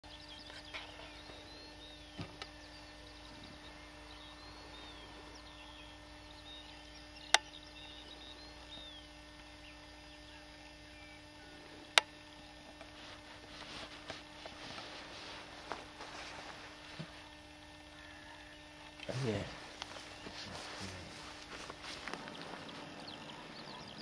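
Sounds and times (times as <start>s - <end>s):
small birds chirping: 0.0s - 24.0s
sharp clicks: 6.8s - 7.8s.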